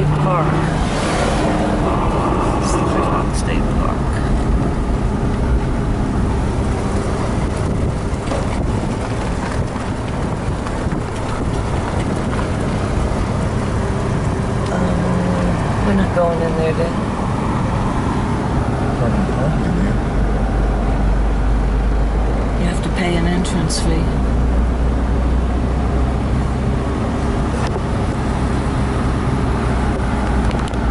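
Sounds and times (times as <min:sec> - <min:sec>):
wind noise: 0:00.0 - 0:22.6
car road noise: 0:00.0 - 0:30.9.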